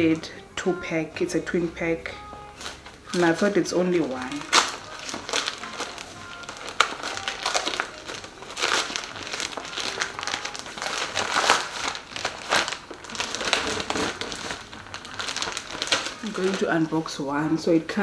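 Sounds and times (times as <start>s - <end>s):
packaging crinkling and rustling: 2.6s - 17.2s.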